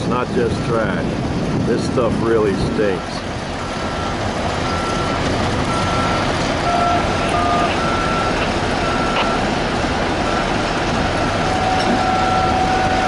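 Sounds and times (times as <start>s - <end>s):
machinery rumble: 0.0s - 13.0s
backup alarm beeping: 2.9s - 9.6s, 10.2s - 13.0s
lower-pitched alarm beeps: 3.0s - 9.5s, 11.2s - 13.0s.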